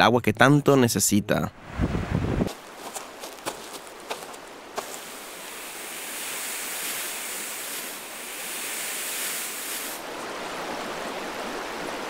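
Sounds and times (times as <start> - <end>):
sand pouring hiss: 3.6 - 10.1.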